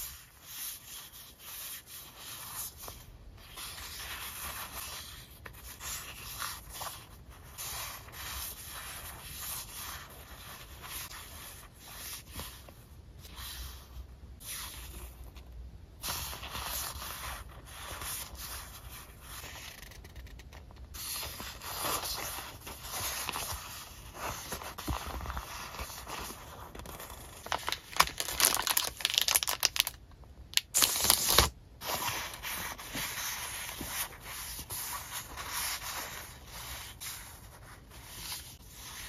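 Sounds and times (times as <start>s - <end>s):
paper sheets rustling: 21.0s - 30.0s.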